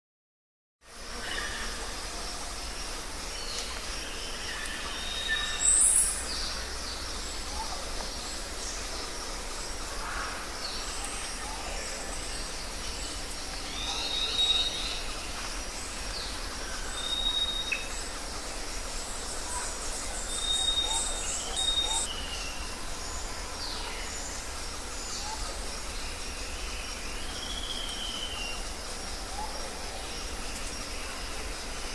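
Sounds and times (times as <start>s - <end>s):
steady background hiss: 0.8s - 31.9s
bird chirps: 19.6s - 22.7s.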